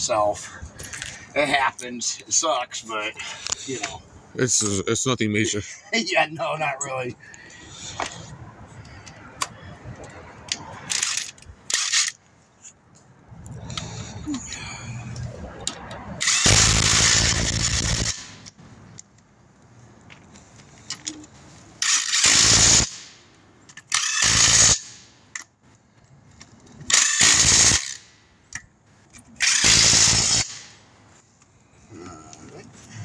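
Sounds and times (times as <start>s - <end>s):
impact wrench bursts: 10.9s - 12.2s, 16.2s - 18.5s, 21.8s - 23.2s, 23.9s - 25.1s, 26.9s - 28.2s, 29.4s - 30.8s.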